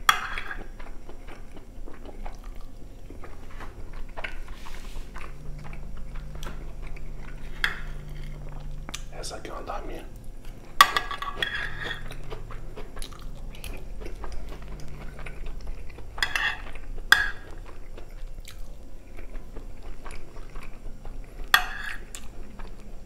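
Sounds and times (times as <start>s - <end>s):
close-up chewing: 0.0s - 23.0s
spoon scraping a glass dish: 7.4s - 8.3s, 10.8s - 12.2s, 16.2s - 17.4s, 21.5s - 22.1s.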